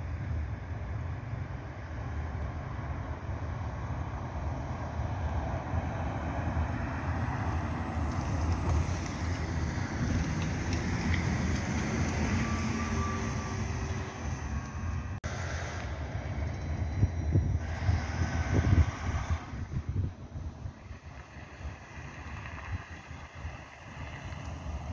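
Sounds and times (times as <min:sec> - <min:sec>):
bus driving past: 0:00.0 - 0:24.9
steady low rumble: 0:15.0 - 0:24.9.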